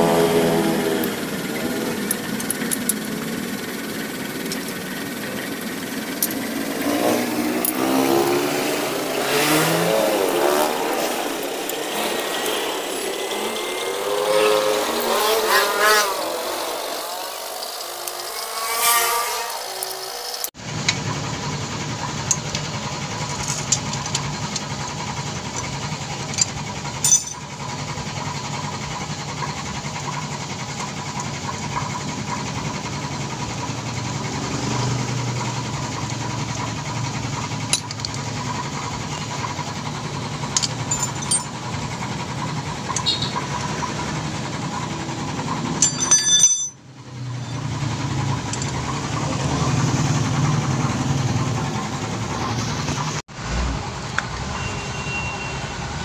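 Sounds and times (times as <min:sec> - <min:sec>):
engine droning: 0:00.0 - 0:56.0
wrench clicking on metal bolts: 0:25.4 - 0:27.4, 0:40.5 - 0:41.6, 0:45.8 - 0:46.7.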